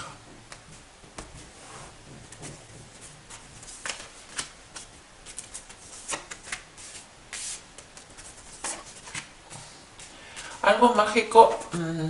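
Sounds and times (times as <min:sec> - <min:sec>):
cards being shuffled: 0:03.0 - 0:09.3.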